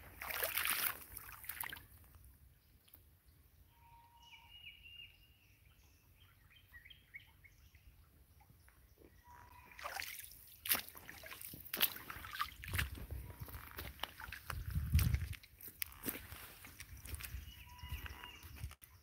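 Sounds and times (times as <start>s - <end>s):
footsteps on gravel: 10.7s - 18.8s
faint bird calls: 17.4s - 18.7s.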